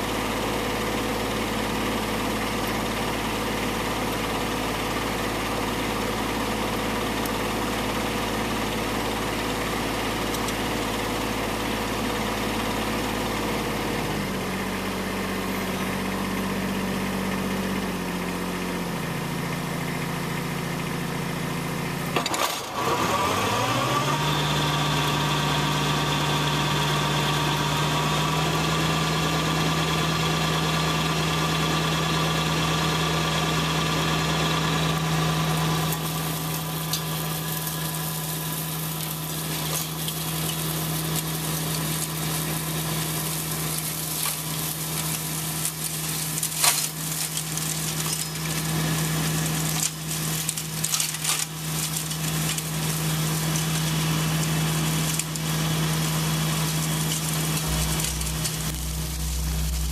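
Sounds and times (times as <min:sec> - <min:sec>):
tractor diesel engine running: 0:00.0 - 0:59.9
brush cracking and snapping: 0:35.9 - 0:55.8, 0:56.5 - 0:59.9
high mechanical whine: 0:56.6 - 0:59.9.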